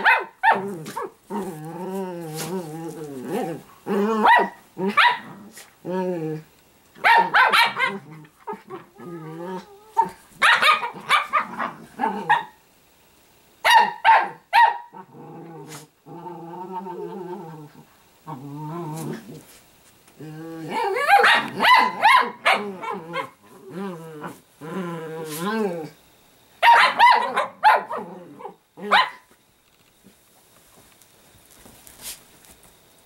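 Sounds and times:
dogs barking: 0.0 - 1.2, 7.0 - 8.0, 10.4 - 11.6, 13.6 - 14.9, 21.0 - 23.3, 26.6 - 28.1, 28.8 - 29.2
dogs growling: 0.5 - 6.5, 7.7 - 10.2, 14.9 - 19.5, 20.2 - 26.0.

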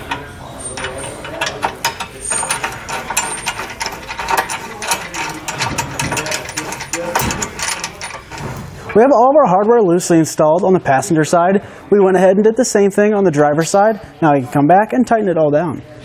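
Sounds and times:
ratchet wrench clicking: 0.0 - 8.6.

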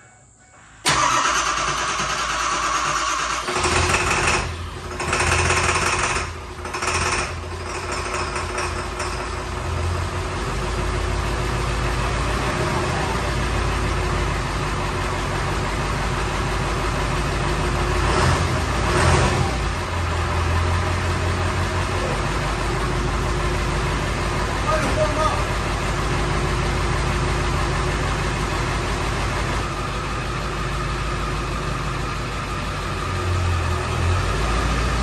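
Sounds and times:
pickup engine starting: 0.6 - 35.0
engine idling low rumble: 8.8 - 35.0.

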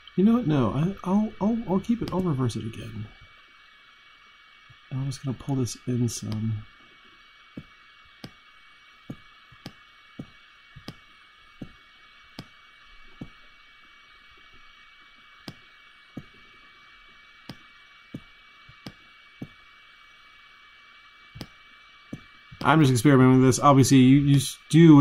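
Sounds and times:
faint hiss with high whine: 0.0 - 25.0
computer mouse clicking: 9.1 - 11.0, 15.4 - 15.6, 17.5 - 19.6, 21.4 - 22.7.

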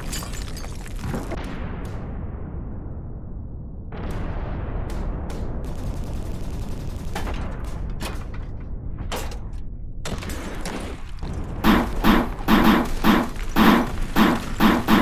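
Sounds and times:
rifle fire volley: 10.1 - 15.0.

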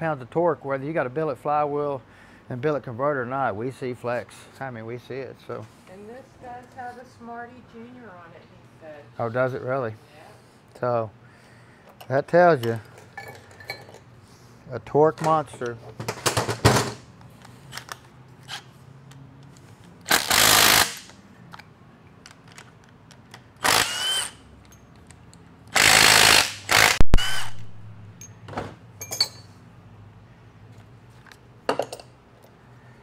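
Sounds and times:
metal clinks of bolts and tools: 11.9 - 14.1, 24.6 - 25.4, 28.1 - 29.6, 31.3 - 32.6
impact wrench whirring: 20.0 - 21.2, 23.6 - 24.4, 25.7 - 27.8.

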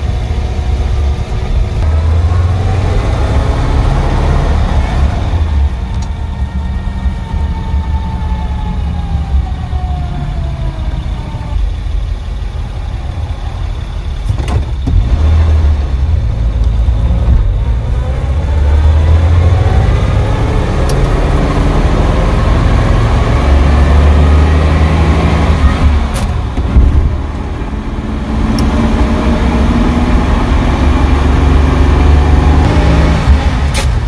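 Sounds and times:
truck engine accelerating: 0.0 - 34.0
click: 5.9 - 6.2, 28.5 - 28.7.

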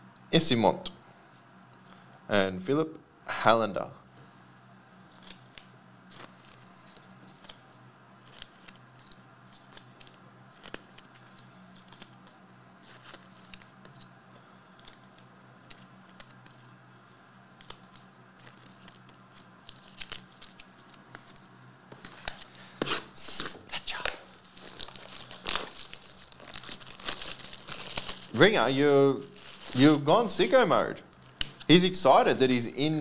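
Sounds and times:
steady low hum: 0.0 - 33.0
trading cards handled on table: 14.7 - 25.9.

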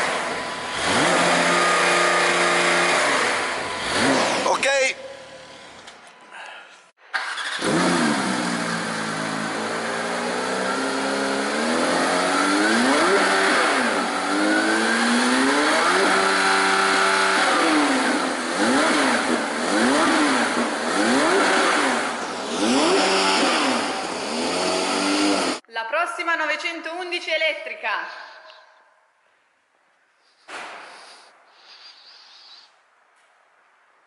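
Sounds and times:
car engine revving: 0.0 - 5.7, 7.2 - 25.6.

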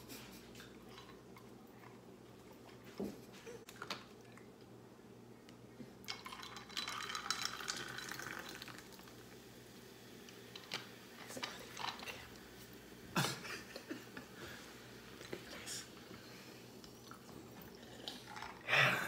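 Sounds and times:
drink fizzing over ice: 6.1 - 12.8.

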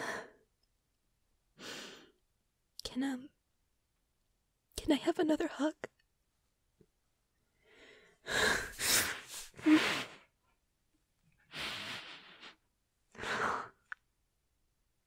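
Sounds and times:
woman breathing heavily: 0.0 - 0.4, 7.6 - 10.2, 11.5 - 12.6, 13.2 - 13.8.

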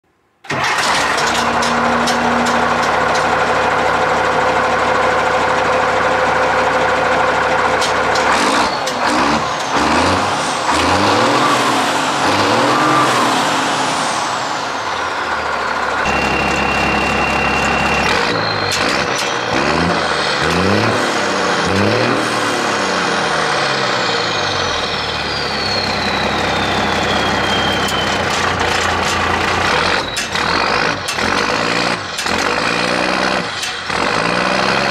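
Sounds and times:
diesel engine idling and revving: 0.5 - 34.9
turbo whine: 16.0 - 20.2, 24.1 - 31.1.

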